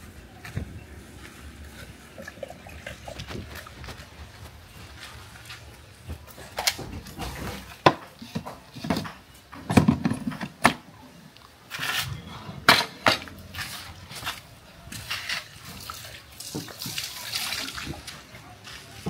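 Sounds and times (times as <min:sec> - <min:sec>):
scraping and rustling: 0:11.7 - 0:16.3.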